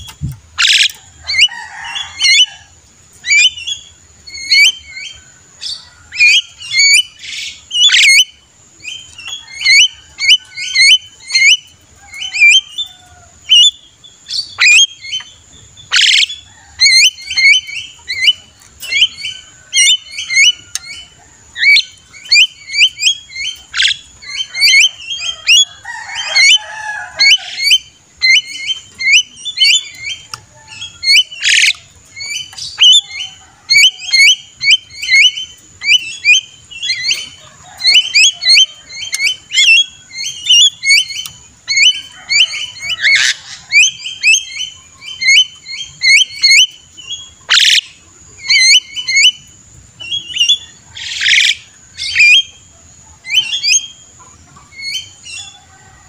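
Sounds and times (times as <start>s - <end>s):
myna chattering calls: 15.9s - 49.4s.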